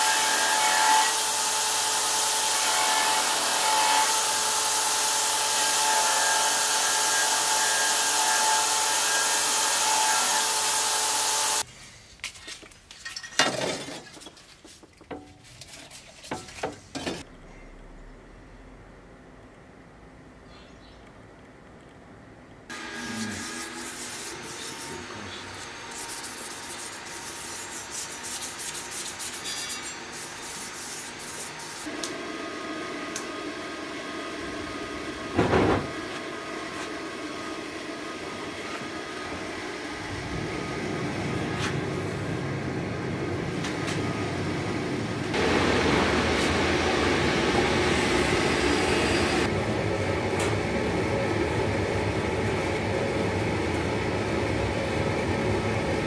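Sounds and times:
gas forge burners roaring: 31.9s - 56.0s.

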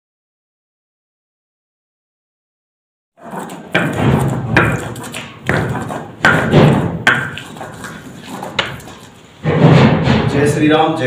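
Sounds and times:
rubbing crunching grinding stroke: 3.2s - 10.2s
stone knocking on slab: 3.7s - 10.2s.

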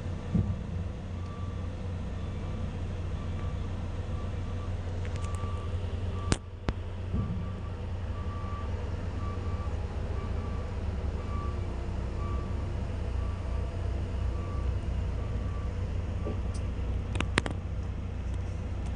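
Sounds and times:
diesel truck engine rumbling: 0.0s - 18.9s
faint beeping alarm: 1.2s - 6.4s, 7.2s - 15.8s.

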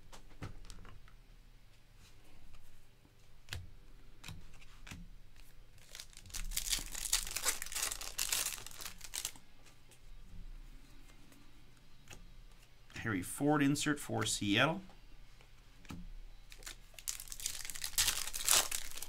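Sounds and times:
foil wrapper tearing and crinkling: 5.8s - 9.4s, 16.5s - 19.0s.

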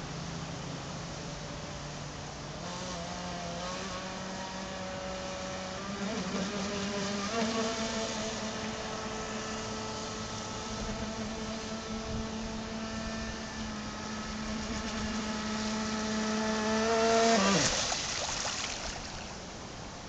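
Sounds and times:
toy boat motor whining: 2.7s - 17.8s.

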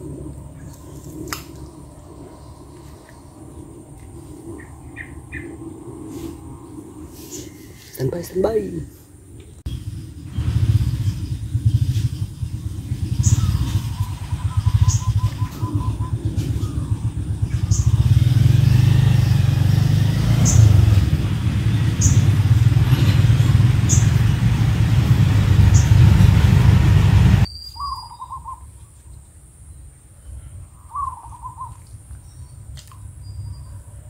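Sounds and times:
low rumble: 0.0s - 7.8s, 9.6s - 27.5s
bird warbling calls: 0.5s - 5.9s, 12.4s - 18.1s, 20.4s - 21.0s, 21.6s - 24.4s, 27.5s - 28.8s, 30.8s - 32.4s
high bird chirps: 9.7s - 18.0s, 20.2s - 25.0s, 27.4s - 28.7s.

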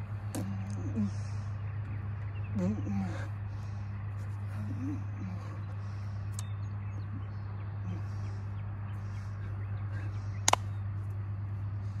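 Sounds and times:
faint outdoor background: 0.0s - 12.0s
low hum: 0.0s - 12.0s
sharp click: 10.4s - 10.7s.

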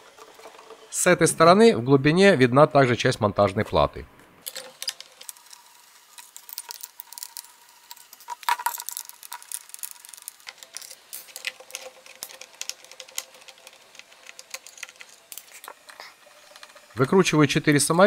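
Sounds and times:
plastic clatter: 4.4s - 17.1s.

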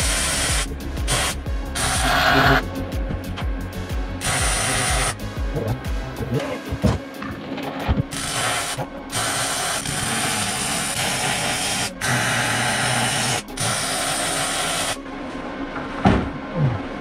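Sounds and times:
arc welding crackling and hissing: 0.0s - 2.7s, 4.2s - 5.3s, 7.8s - 15.0s.

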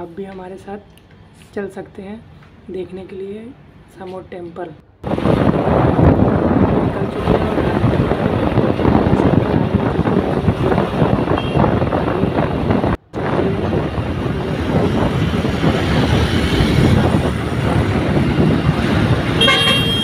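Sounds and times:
passing traffic: 0.0s - 20.0s
wind buffeting microphone: 5.0s - 20.0s
motorbike engine: 13.2s - 20.0s.

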